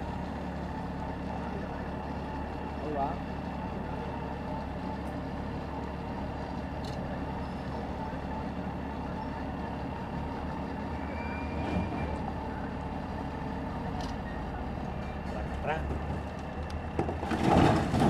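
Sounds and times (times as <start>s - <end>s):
diesel engine running under load: 0.0s - 18.0s.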